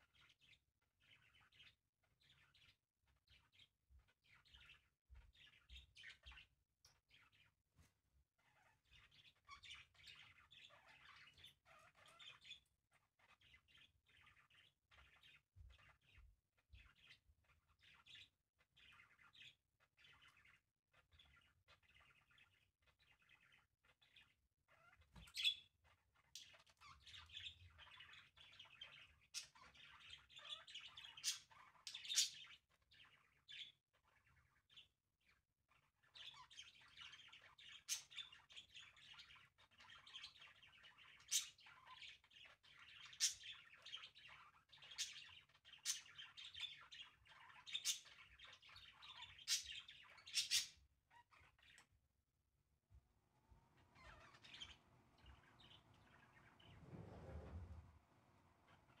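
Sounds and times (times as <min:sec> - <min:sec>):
budgerigars chattering: 0:24.8 - 0:25.7, 0:41.1 - 0:51.7.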